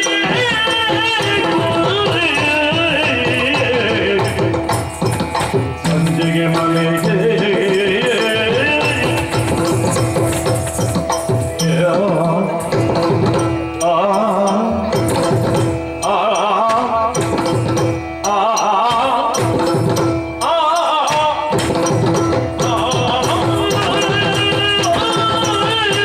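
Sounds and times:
drum strokes: 0.0s - 26.0s
person singing ornamented phrases: 5.8s - 9.4s, 11.6s - 13.0s, 16.0s - 17.6s, 18.2s - 19.8s, 22.6s - 26.0s.

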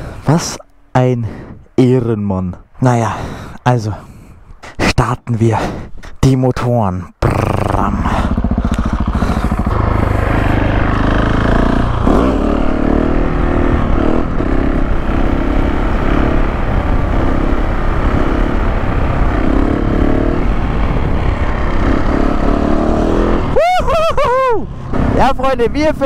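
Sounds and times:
motorcycle engine revving hard: 7.2s - 23.6s, 24.7s - 26.0s.

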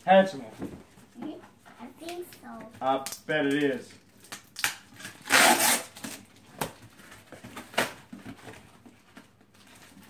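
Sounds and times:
cardboard box ripping: 5.2s - 6.2s.

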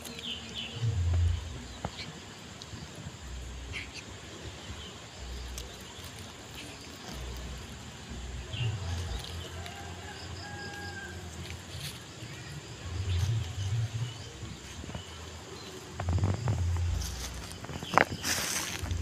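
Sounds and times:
low rumble: 0.8s - 2.0s, 11.2s - 19.0s
dry leaves crackling: 3.3s - 19.0s.

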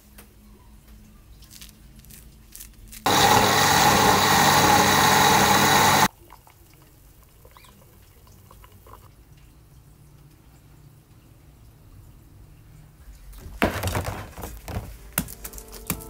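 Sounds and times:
electric blender running: 3.1s - 6.1s.

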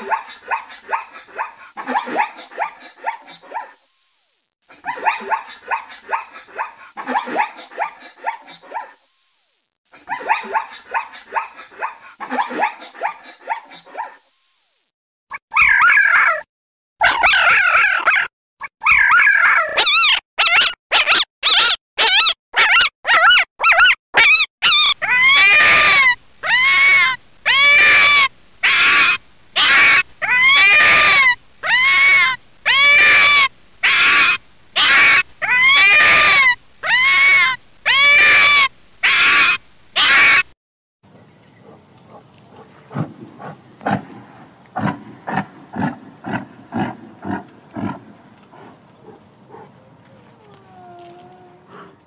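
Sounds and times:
fox barking: 0.0s - 3.8s, 4.8s - 9.0s, 10.0s - 14.2s, 41.1s - 52.0s.

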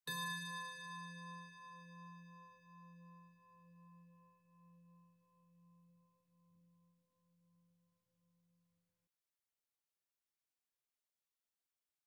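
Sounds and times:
singing bowl ringing: 0.1s - 4.1s.

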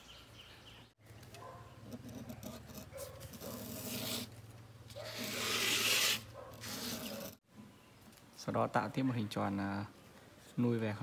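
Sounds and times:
pen scratching on cardboard: 1.8s - 4.3s, 4.9s - 7.4s.

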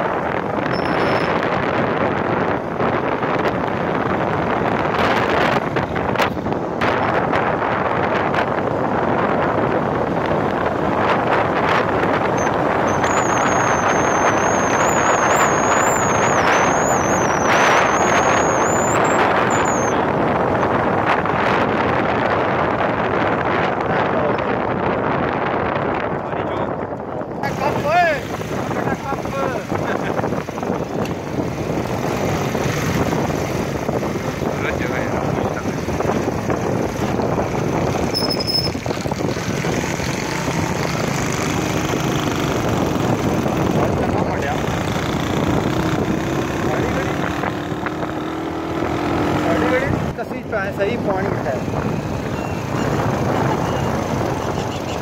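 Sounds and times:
wind rush and road noise: 0.0s - 55.0s.

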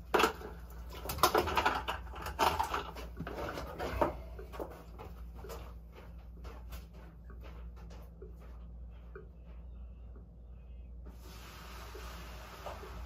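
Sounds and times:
knocks and rustling handling: 0.0s - 9.7s
steady low hum: 0.0s - 13.0s.

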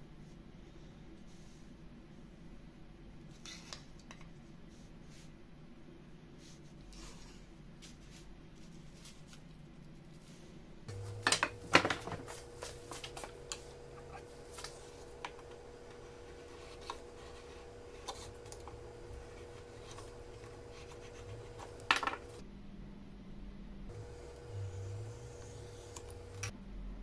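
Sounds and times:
faint steady hum: 9.5s - 27.0s.

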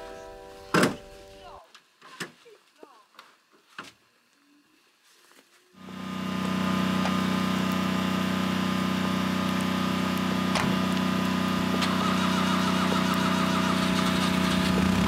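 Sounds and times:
vehicle engine humming: 5.8s - 15.0s.

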